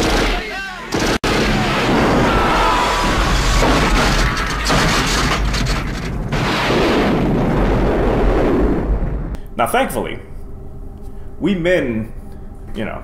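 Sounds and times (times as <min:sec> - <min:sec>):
explosions: 0:01.0 - 0:09.4
heavy rumbling: 0:01.3 - 0:09.4.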